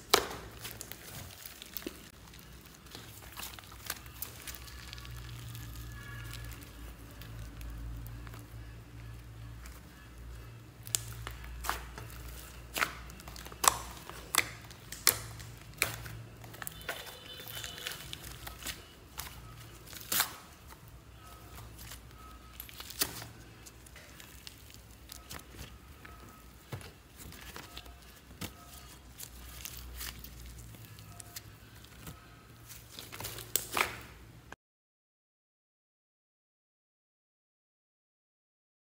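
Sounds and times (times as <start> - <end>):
slime clicking and popping: 0.0 - 9.8, 10.8 - 20.6, 21.6 - 32.1, 32.9 - 34.2
low steady hum: 0.0 - 34.5.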